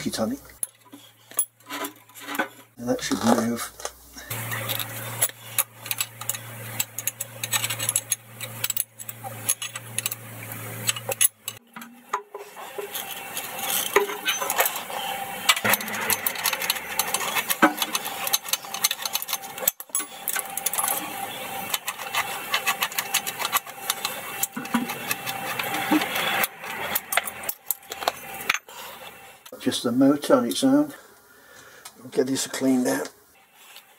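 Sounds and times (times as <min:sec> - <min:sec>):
spanner and ratchet clicking: 0:04.3 - 0:11.6, 0:15.5 - 0:28.6.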